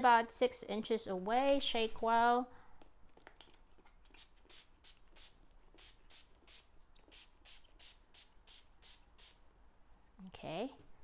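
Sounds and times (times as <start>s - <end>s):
spray bottle hissing: 4.2s - 9.4s.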